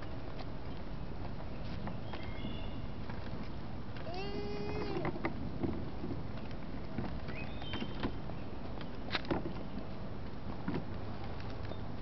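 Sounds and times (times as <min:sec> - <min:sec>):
wagon wheels rumbling on asphalt: 0:00.0 - 0:12.0
wagon clicks and knocks: 0:03.0 - 0:09.8, 0:10.5 - 0:12.0.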